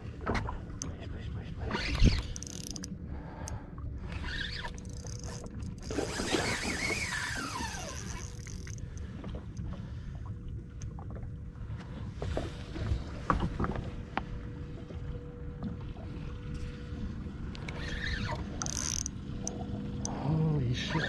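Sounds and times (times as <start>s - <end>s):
boat engine rumble: 0.0s - 21.0s
mechanical clicking and rattling: 2.0s - 2.9s, 18.6s - 19.2s.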